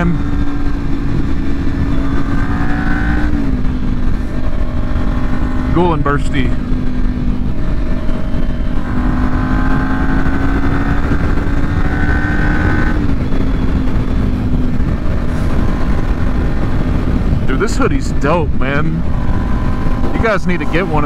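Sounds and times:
motorcycle engine running: 0.0s - 21.0s
wind noise on microphone: 0.0s - 21.0s.

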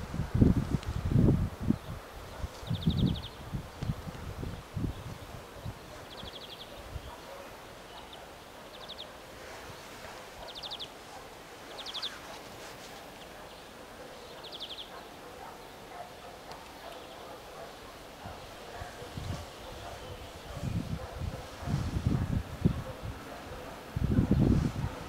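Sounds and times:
wind thumps on microphone: 0.0s - 6.1s, 18.2s - 23.3s, 23.9s - 25.0s.

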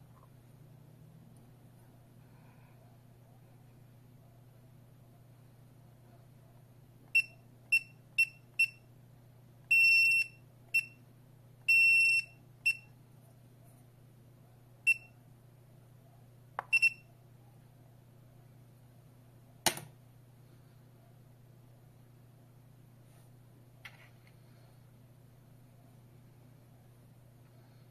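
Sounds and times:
alarm keypad beeping: 16.7s - 17.0s.

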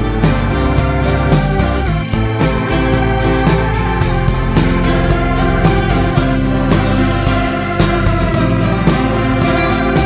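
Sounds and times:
instrumental background music: 0.0s - 10.0s.

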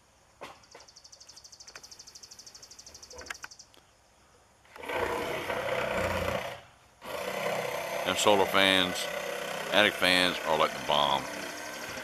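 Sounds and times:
jigsaw cutting plywood: 4.8s - 12.0s.

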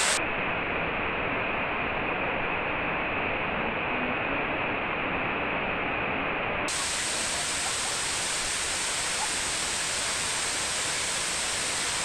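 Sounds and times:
waterfall rushing hiss: 0.0s - 0.2s, 6.7s - 12.0s.

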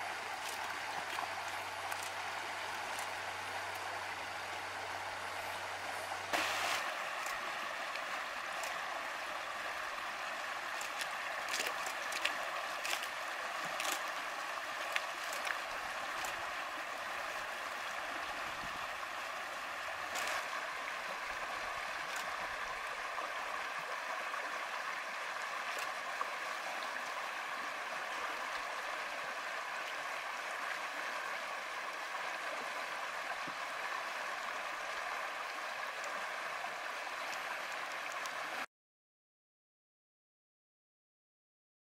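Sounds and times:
running water: 0.0s - 38.7s
sharp water splashes: 6.3s - 9.2s, 9.8s - 16.6s, 20.0s - 20.6s.

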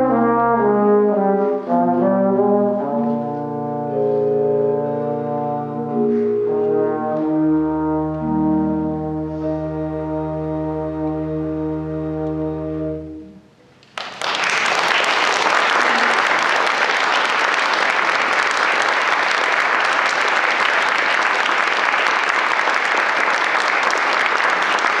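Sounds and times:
trombone and pipe organ chord: 0.0s - 13.6s
audience applause: 13.8s - 25.0s.

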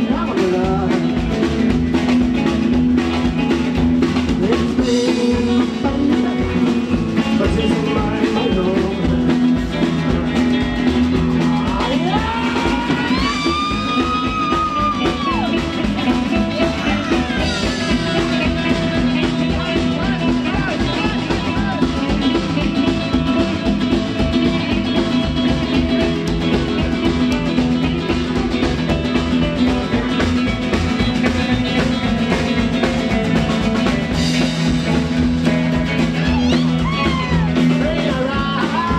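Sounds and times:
acoustic guitar: 0.0s - 38.9s
double bass: 0.0s - 38.9s
drum kit: 0.0s - 38.9s
electric guitar: 0.0s - 38.9s.

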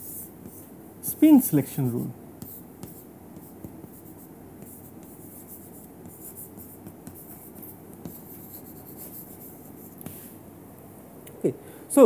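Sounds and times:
chalk scratching on chalkboard: 0.0s - 0.7s, 1.9s - 10.3s.

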